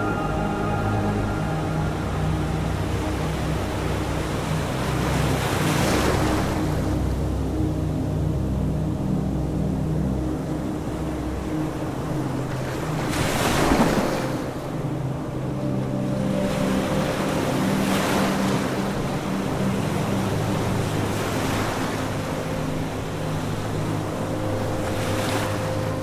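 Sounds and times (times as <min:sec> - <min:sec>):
steady low hum: 0:00.0 - 0:13.2
ocean surf washing in: 0:00.0 - 0:26.0.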